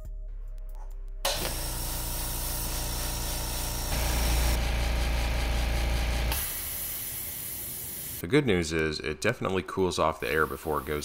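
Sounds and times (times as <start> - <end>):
air compressor humming: 1.3 - 8.2.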